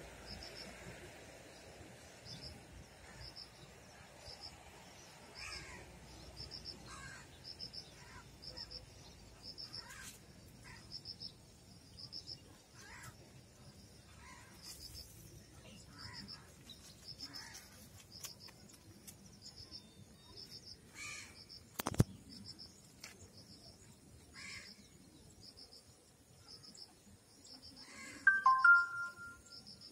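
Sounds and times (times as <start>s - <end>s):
insect chirping: 0.0s - 18.5s.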